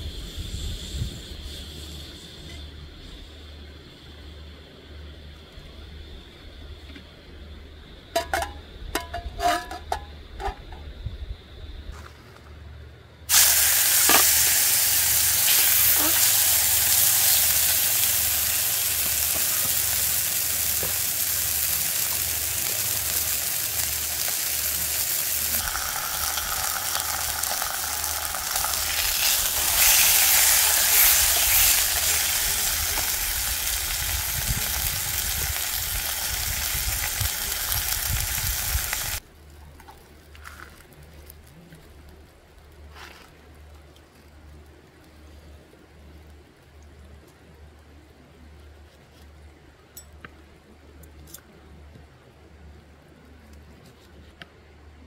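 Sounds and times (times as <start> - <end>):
meat sizzling in a frying pan: 13.3 - 39.2.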